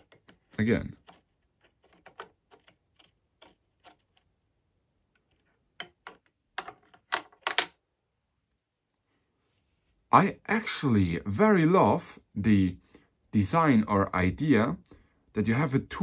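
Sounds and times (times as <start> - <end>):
wooden pieces clacking: 0.0 - 4.4, 5.1 - 7.8.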